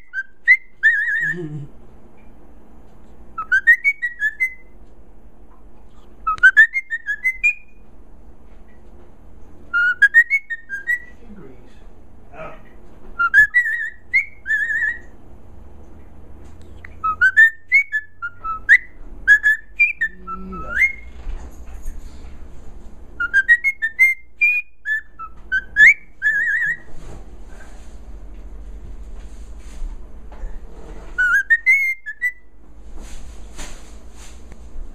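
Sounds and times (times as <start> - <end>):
cockatiel whistling a tune: 0.0 - 1.4, 3.4 - 4.8, 6.2 - 7.8, 9.7 - 11.2, 13.2 - 15.1, 16.8 - 21.1, 23.2 - 26.9, 31.2 - 32.5.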